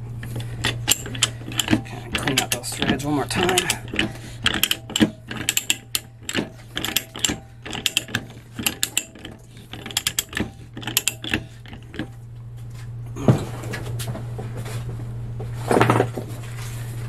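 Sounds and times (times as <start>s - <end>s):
pipe threader ratchet clicking: 0.0s - 12.2s.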